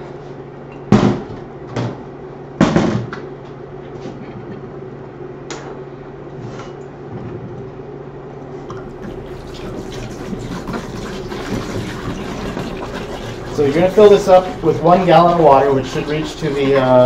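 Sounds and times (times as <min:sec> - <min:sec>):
steady low hum: 0:03.4 - 0:17.0.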